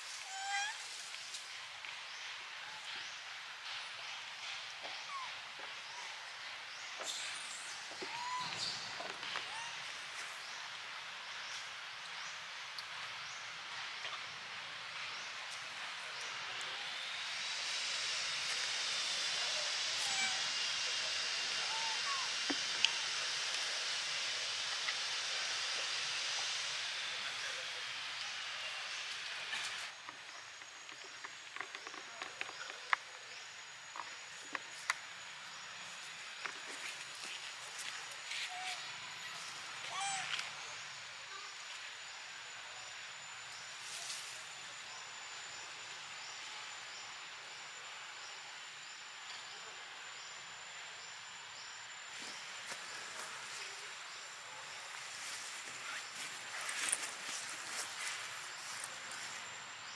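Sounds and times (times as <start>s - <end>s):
faint insect chirps: 0.0s - 59.9s
high insect tone: 6.8s - 59.9s
rustling in dry leaves: 52.1s - 59.9s.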